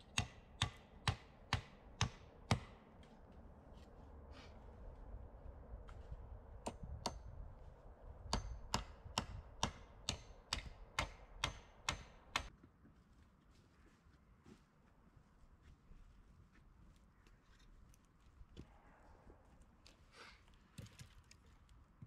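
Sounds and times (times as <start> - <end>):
tool striking wood: 0.1 - 2.8, 8.3 - 12.5.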